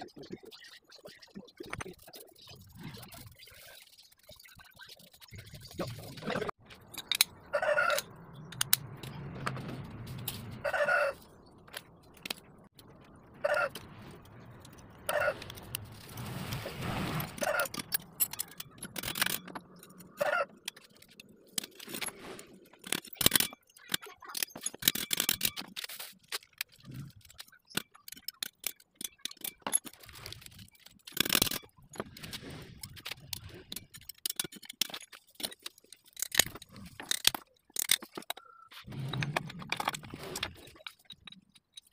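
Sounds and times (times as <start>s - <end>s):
metal clinks and scrapes of tools: 17.3s - 41.9s.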